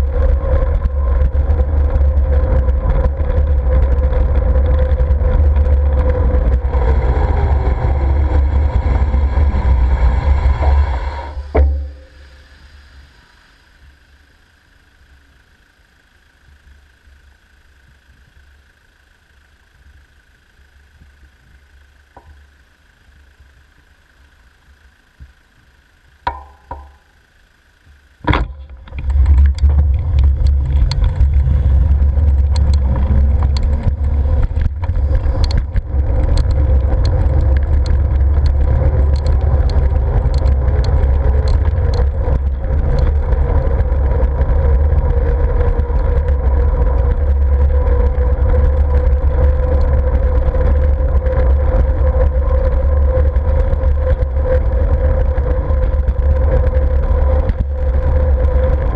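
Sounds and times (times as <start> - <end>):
wind rumbling over microphone: 0.0 - 14.0, 28.2 - 58.9
road noise: 0.0 - 58.9
steady hum: 0.0 - 58.9
sharp knock: 11.5 - 12.4, 26.3 - 27.1
scattered ticks: 28.6 - 58.9.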